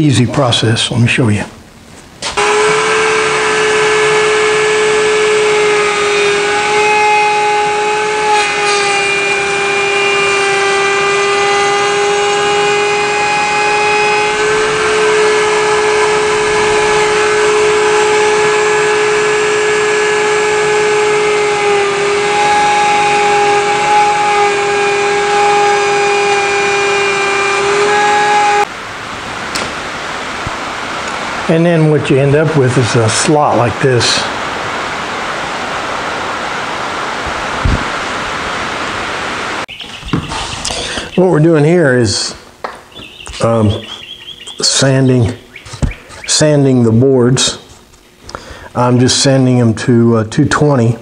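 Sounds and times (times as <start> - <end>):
router whining cutting wood: 2.3 - 28.7.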